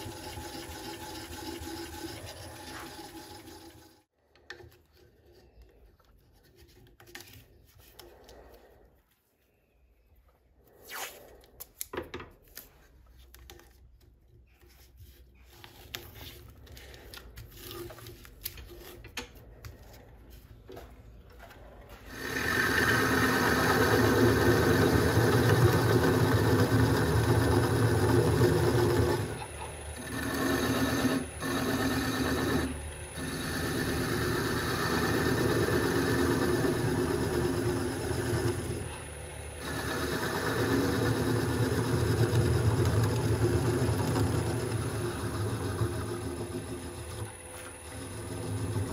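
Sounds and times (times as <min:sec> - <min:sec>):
wood lathe humming: 0:00.0 - 0:04.1, 0:22.0 - 0:48.9
turning tool scraping wood: 0:21.5 - 0:48.9.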